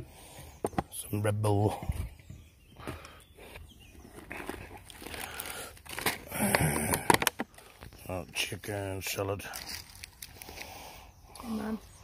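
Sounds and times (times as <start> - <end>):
plastic packaging crinkling: 4.1 - 7.7, 9.5 - 10.6.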